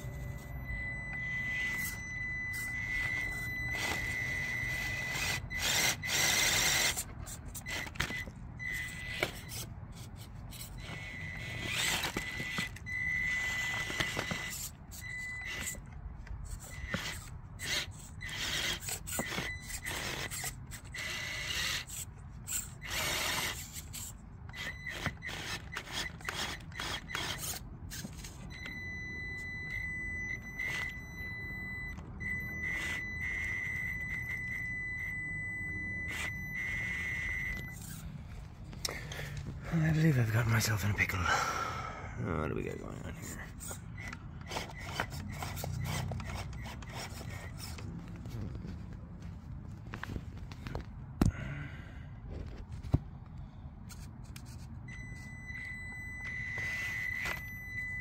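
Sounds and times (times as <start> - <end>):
thin high tone: 0.0 - 5.5
toy car drivetrain whirring: 0.0 - 38.1, 43.2 - 48.6.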